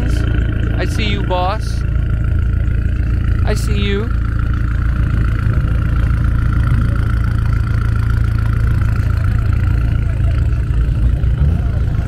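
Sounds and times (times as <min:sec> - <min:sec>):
engine rumbling: 0:00.0 - 0:12.0.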